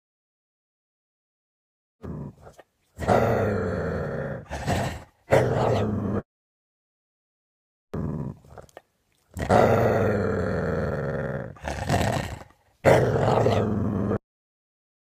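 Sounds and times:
dog growling: 2.0s - 6.3s, 8.0s - 14.2s.

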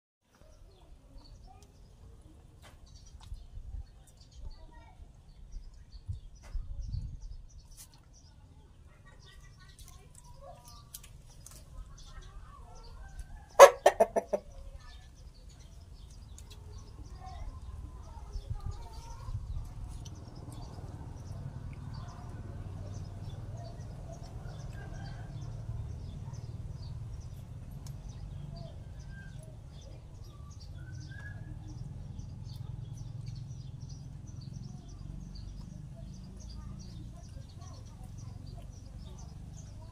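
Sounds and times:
rooster clucking: 13.5s - 14.6s.

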